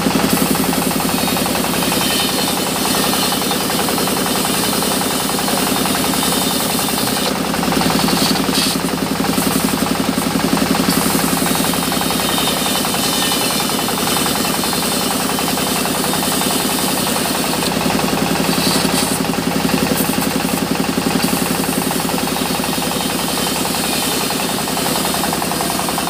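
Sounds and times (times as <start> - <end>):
band saw cutting wood: 0.0 - 26.0.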